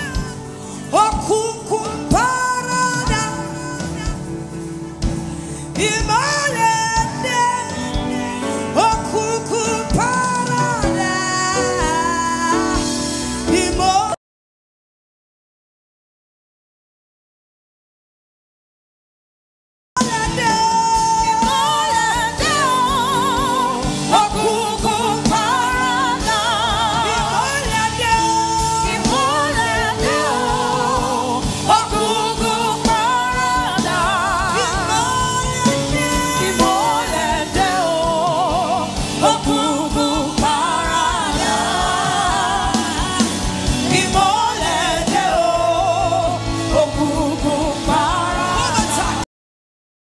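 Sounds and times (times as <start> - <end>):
woman singing with vibrato: 0.0 - 4.7, 5.7 - 14.2, 20.0 - 49.2
band with drums: 0.0 - 14.2, 20.0 - 49.2
backing singers: 20.4 - 49.2.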